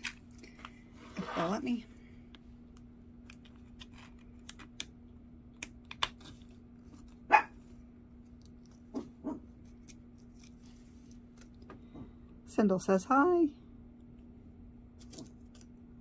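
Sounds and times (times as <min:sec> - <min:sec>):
faint steady hum: 0:00.0 - 0:16.0
dog barking: 0:07.3 - 0:07.6, 0:09.2 - 0:09.4.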